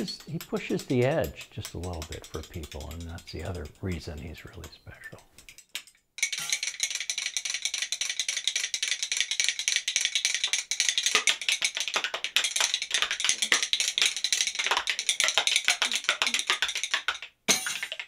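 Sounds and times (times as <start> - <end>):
sharp clack: 0.0 - 4.8
spoons clattering as percussion: 0.0 - 4.8, 5.4 - 18.0.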